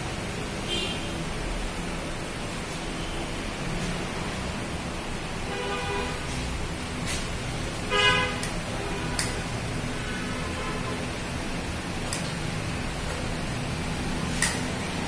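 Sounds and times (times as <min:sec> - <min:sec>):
vehicle horn tooting: 0:07.9 - 0:09.1
sharp clicks: 0:09.2 - 0:09.4, 0:14.4 - 0:14.7.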